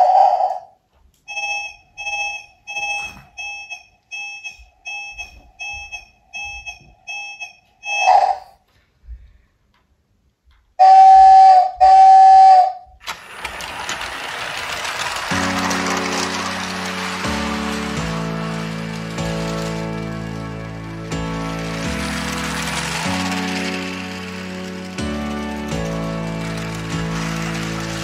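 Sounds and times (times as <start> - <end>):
short electronic beeps: 1.3 - 8.4
toy train chime: 1.3 - 8.5, 13.0 - 28.0
toy train horn blasts: 10.8 - 12.8
toy train motor whirring: 13.0 - 28.0.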